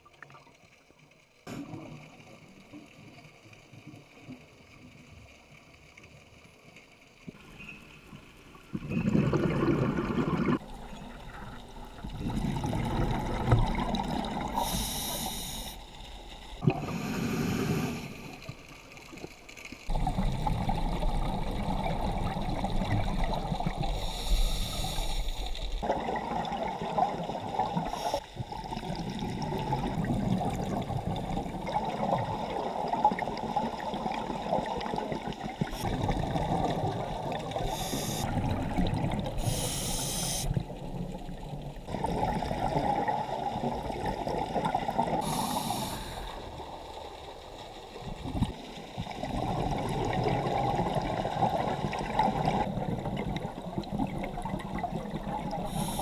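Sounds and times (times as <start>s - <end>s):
exhaled bubbles hissing: 8.8s - 18.8s, 19.9s - 56.0s
muffled underwater regulator breathing: 14.4s - 15.9s, 16.6s - 18.6s, 23.8s - 25.6s, 37.6s - 38.4s, 39.4s - 40.6s, 45.2s - 46.5s, 55.5s - 56.0s.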